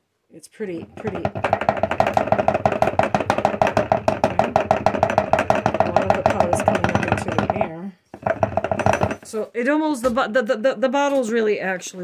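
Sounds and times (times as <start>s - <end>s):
electric grain mill grinding: 0.8s - 9.3s.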